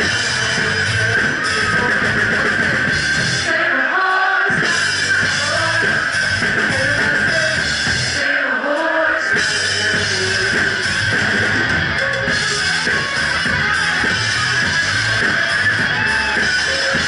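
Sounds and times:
electric guitar: 0:00.0 - 0:08.3, 0:09.3 - 0:17.0
drums: 0:00.0 - 0:17.0
live rock band playing: 0:00.0 - 0:17.0
woman singing lead vocal: 0:03.4 - 0:10.8.

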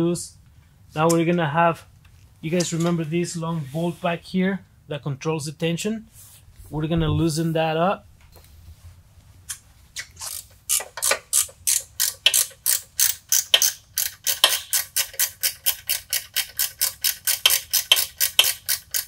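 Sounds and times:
ratchet wrench clicking: 0:10.2 - 0:19.0.

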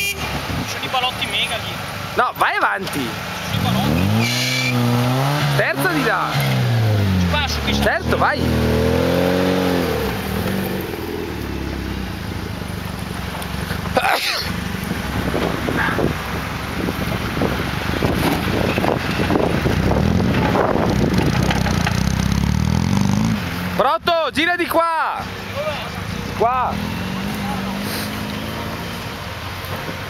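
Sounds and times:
car engine at low revs: 0:03.0 - 0:23.8.

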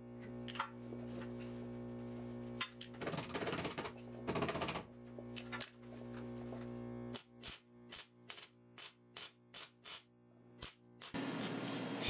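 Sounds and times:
welding crackle: 0:07.2 - 0:12.0.

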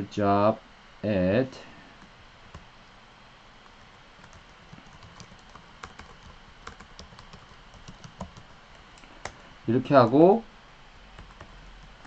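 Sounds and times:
computer keyboard typing: 0:03.9 - 0:09.4, 0:11.2 - 0:12.0.

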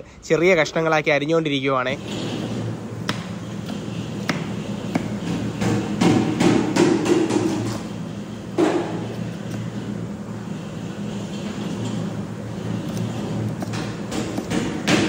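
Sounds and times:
steady low hum: 0:00.0 - 0:15.0
knife chopping on wooden block: 0:03.1 - 0:07.8, 0:12.9 - 0:15.0.

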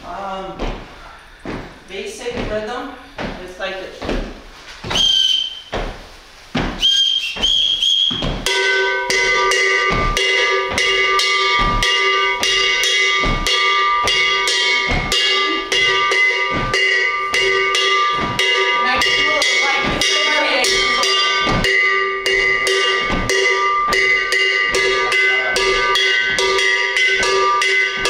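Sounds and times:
whistle blasts: 0:04.9 - 0:05.8, 0:06.8 - 0:08.9
iron bell struck with stick: 0:08.5 - 0:28.0.

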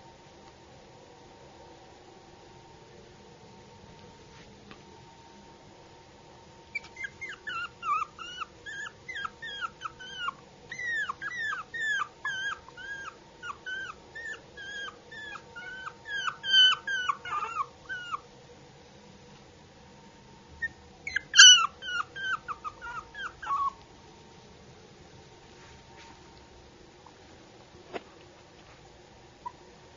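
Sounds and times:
puppy whimpering: 0:06.7 - 0:18.2, 0:20.6 - 0:23.8.

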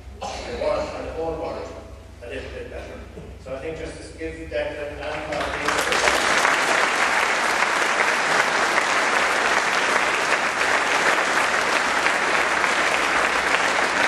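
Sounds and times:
crowd applauding: 0:05.1 - 0:14.0.

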